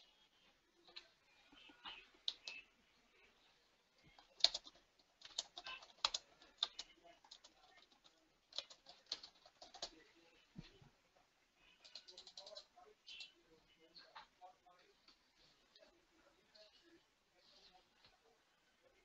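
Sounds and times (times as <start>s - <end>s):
keyboard typing: 1.9s - 2.6s, 4.1s - 10.0s, 11.8s - 13.3s.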